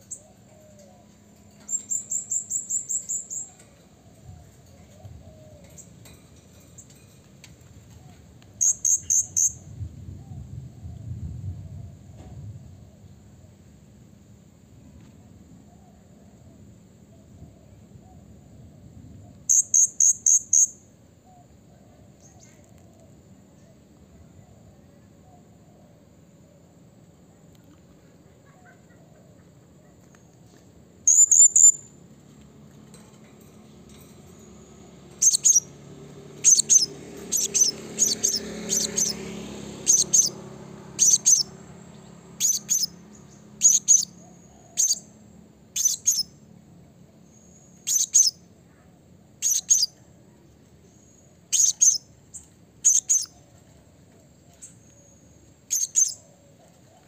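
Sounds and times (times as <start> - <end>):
parrot high-pitched chirps: 8.6 - 9.6, 19.5 - 20.8, 31.1 - 31.9, 35.2 - 35.7, 36.4 - 39.2, 39.8 - 40.4, 41.0 - 41.6, 42.4 - 45.1, 45.7 - 46.4, 47.6 - 48.5, 49.4 - 50.0, 51.5 - 52.2, 52.8 - 53.4, 55.6 - 56.2.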